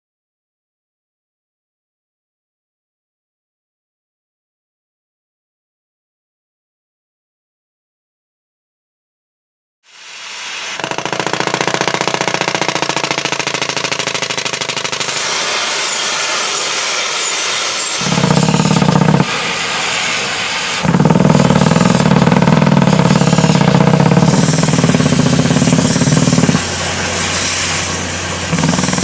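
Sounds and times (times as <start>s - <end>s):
pneumatic air hammer hammering rock: 10.2s - 29.0s
exhaust air hissing: 15.0s - 29.0s.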